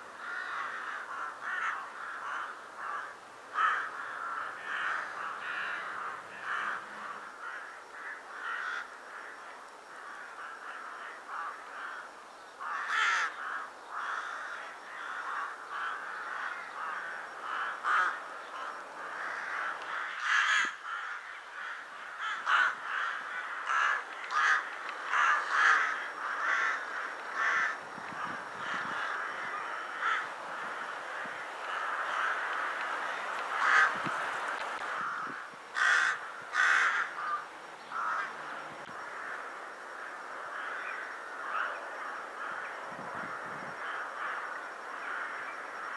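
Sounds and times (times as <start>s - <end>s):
flock of rooks cawing: 0.0s - 45.9s
loud single caws: 0.2s - 45.9s.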